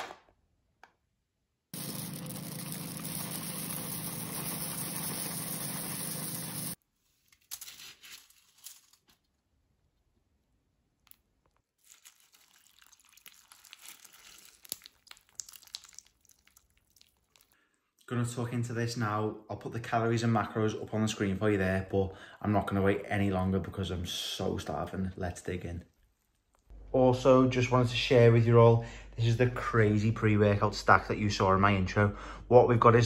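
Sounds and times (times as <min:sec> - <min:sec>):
milk pouring and splashing: 0:01.8 - 0:06.8, 0:11.8 - 0:17.7.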